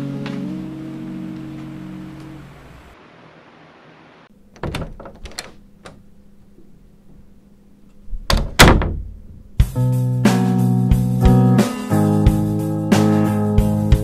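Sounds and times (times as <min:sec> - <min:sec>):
door clicks and knocks: 0:04.5 - 0:06.1, 0:08.1 - 0:09.4
heavy door thuds: 0:04.6 - 0:05.6, 0:08.2 - 0:09.5.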